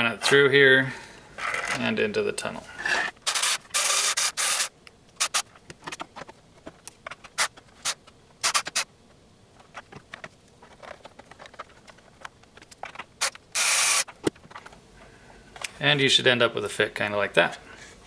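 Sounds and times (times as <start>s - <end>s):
plastic parts clicking and tapping: 9.6s - 13.1s.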